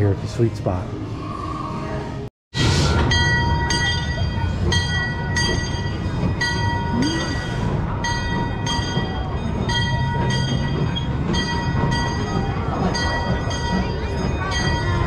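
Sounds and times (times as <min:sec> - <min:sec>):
train rumble: 0:00.0 - 0:15.0
train wheels clicking: 0:03.0 - 0:15.0.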